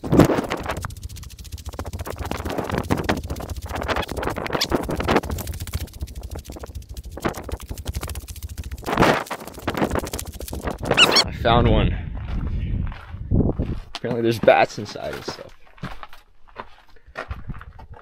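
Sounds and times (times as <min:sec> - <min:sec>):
footsteps crunching on gravel: 0:12.2 - 0:18.0.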